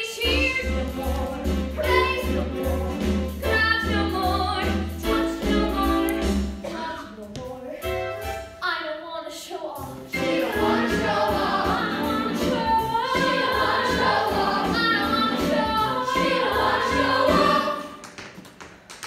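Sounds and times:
show tune accompaniment with bass: 0.0 - 18.0
cast singing with lead voice: 10.1 - 18.0.

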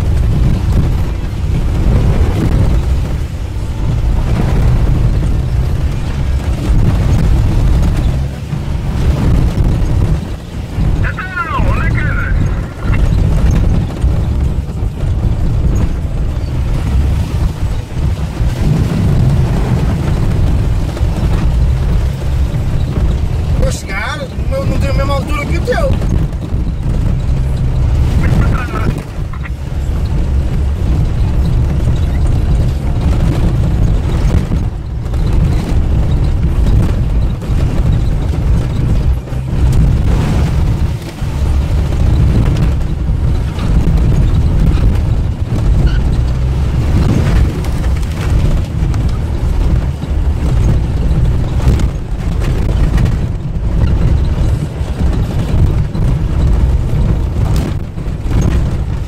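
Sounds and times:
vehicle engine and tyres rumbling: 0.0 - 59.0.

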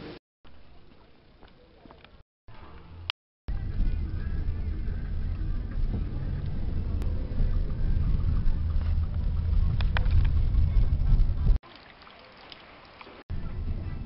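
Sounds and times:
low rumbling noise: 2.5 - 11.6, 13.3 - 14.0.

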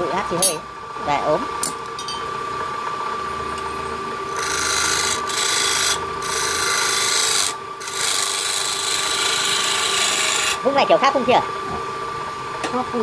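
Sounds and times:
wood lathe motor whine: 0.0 - 13.0
turning tool scraping wood: 4.3 - 10.6.

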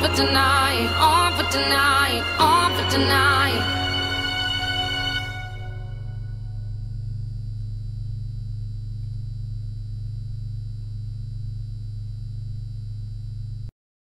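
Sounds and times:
steady low hum: 3.6 - 13.7.

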